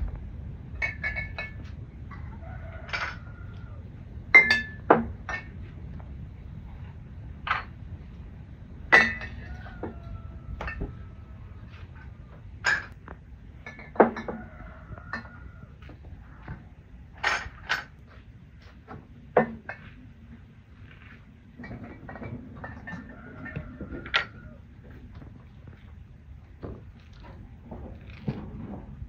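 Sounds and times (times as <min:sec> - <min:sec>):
glass jars clinking: 0:04.4 - 0:05.5.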